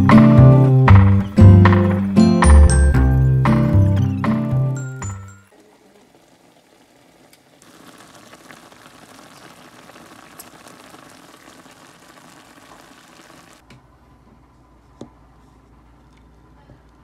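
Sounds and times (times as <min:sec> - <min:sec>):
boiling water bubbling: 0:05.5 - 0:13.6.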